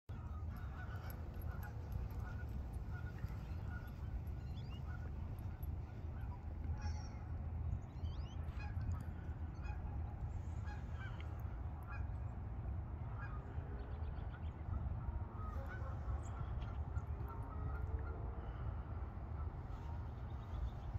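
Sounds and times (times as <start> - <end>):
geese honking: 0.1 - 7.2, 8.5 - 11.3, 15.0 - 20.1
steady low rumble: 0.1 - 20.9.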